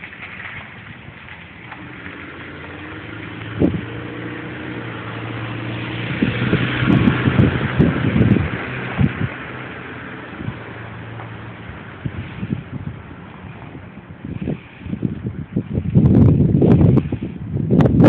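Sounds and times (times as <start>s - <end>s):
engine running: 0.0s - 18.0s.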